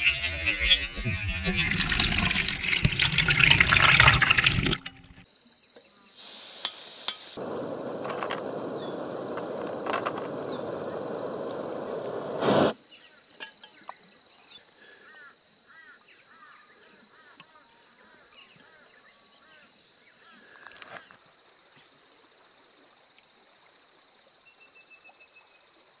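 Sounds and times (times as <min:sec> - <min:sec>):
insects buzzing: 0:00.0 - 0:21.2
water pouring into pot: 0:01.2 - 0:05.2
gas stove hissing: 0:06.2 - 0:12.8.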